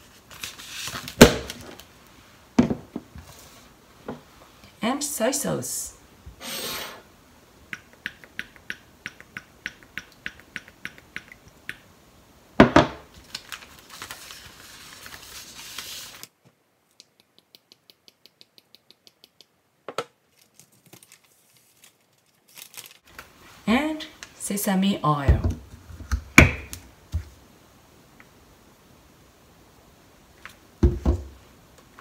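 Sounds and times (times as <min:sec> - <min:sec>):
plastic zipper bag crinkling: 0:13.1 - 0:16.3, 0:20.3 - 0:23.1.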